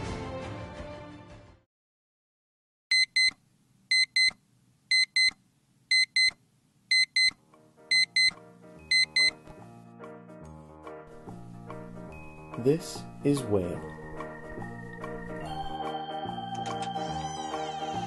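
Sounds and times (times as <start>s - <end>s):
alarm clock beeping: 2.9s - 9.4s
soft music: 7.4s - 18.0s.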